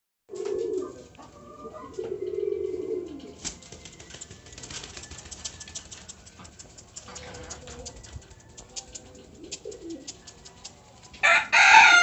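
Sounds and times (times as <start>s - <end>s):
pigeons cooing: 0.3s - 10.7s
pigeon wings flapping in cage: 3.4s - 11.2s.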